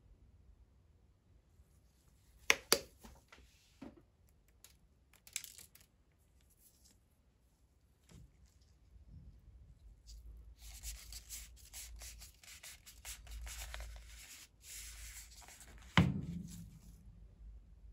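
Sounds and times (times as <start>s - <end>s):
gloved hands rustling paper cup: 10.1s - 16.7s.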